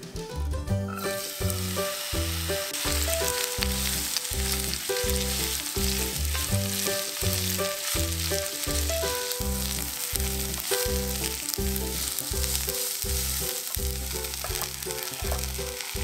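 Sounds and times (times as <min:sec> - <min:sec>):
onions sizzling in hot oil: 0:01.0 - 0:16.0
spatula stirring in pan: 0:01.1 - 0:16.0.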